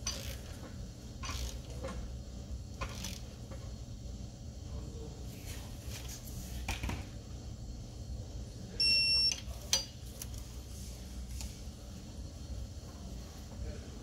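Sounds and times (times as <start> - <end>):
torque wrench beep: 8.8 - 9.5.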